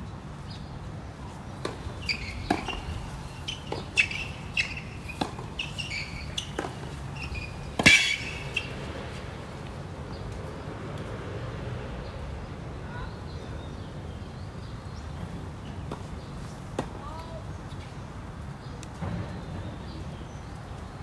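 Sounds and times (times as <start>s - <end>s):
racket hitting tennis ball: 1.6s - 8.9s.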